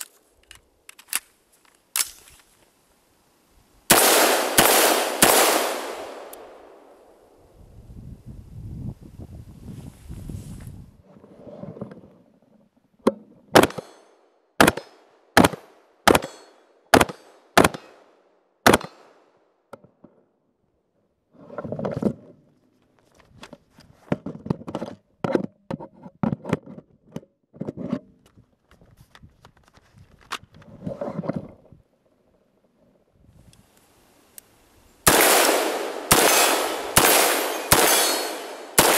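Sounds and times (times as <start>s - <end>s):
rifle shots: 3.9s - 6.9s, 13.6s - 14.0s, 14.6s - 19.2s, 35.1s - 38.9s.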